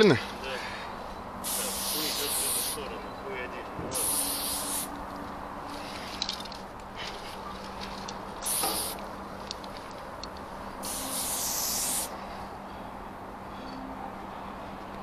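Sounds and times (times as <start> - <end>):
spray-paint can hissing: 1.4 - 2.8, 3.9 - 5.0, 8.4 - 9.0, 10.8 - 12.1.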